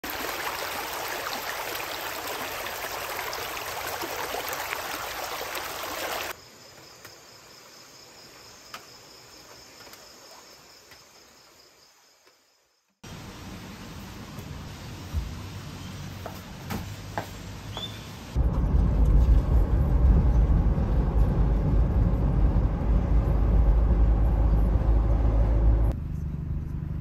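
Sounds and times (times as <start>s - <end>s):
stream rushing over rocks: 0.0s - 6.4s
faint high insect trill: 6.3s - 13.0s.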